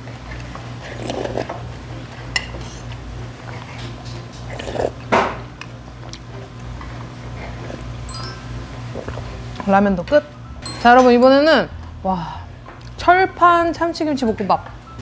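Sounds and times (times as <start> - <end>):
slurping noodles: 0.8 - 1.5, 4.5 - 5.0.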